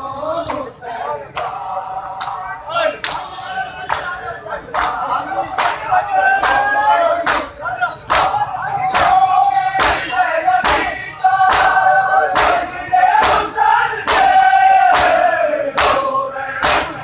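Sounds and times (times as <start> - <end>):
men chanting mourning cries: 0.0 - 17.0
hands slapping chests: 5.6 - 9.2, 10.6 - 13.5, 14.1 - 17.0.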